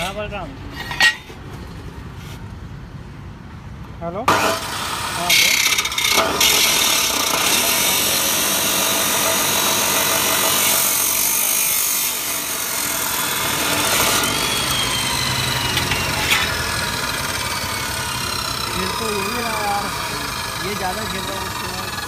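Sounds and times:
chop saw grinding through steel: 0.0s - 0.2s, 4.3s - 22.0s
saw running free: 4.3s - 22.0s.

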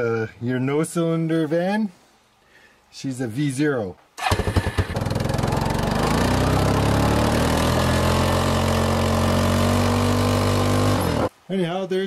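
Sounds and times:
atv engine running: 4.2s - 11.3s.

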